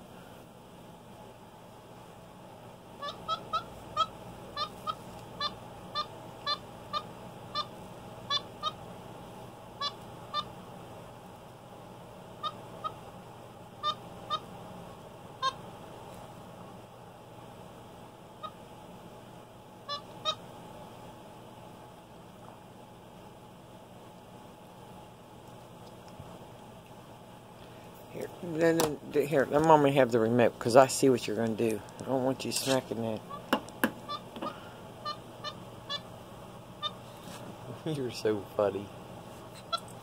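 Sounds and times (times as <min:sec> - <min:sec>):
monkey squeaky calls: 0:03.0 - 0:07.7, 0:08.3 - 0:08.8, 0:13.8 - 0:14.4, 0:33.3 - 0:34.3, 0:35.0 - 0:36.1, 0:36.8 - 0:37.0, 0:39.6 - 0:39.9.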